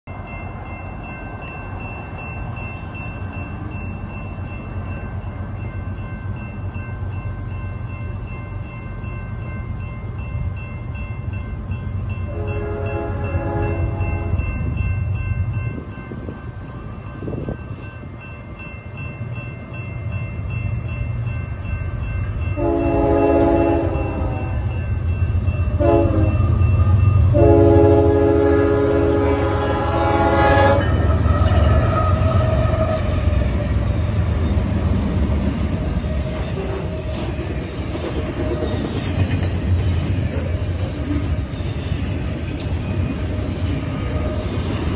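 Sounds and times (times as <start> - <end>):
crossing bell ringing: 0.0 - 44.9
diesel locomotives rumbling: 0.1 - 44.9
train horn blasts: 12.3 - 14.5, 22.6 - 24.8, 25.7 - 33.4.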